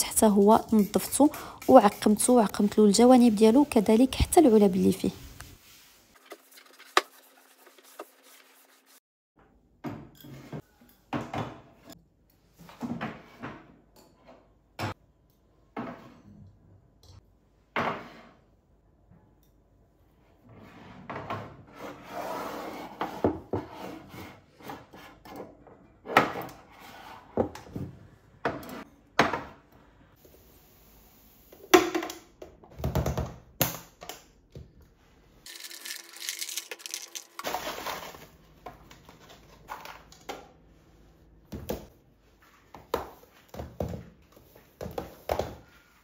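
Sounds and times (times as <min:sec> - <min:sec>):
cloth rubbing on surfaces: 0:04.6 - 0:09.0.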